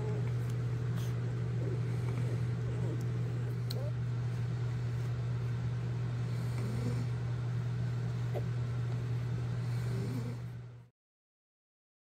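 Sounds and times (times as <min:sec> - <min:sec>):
puppies squeaking and grunting: 0:00.0 - 0:04.1
low mechanical hum: 0:00.0 - 0:10.9.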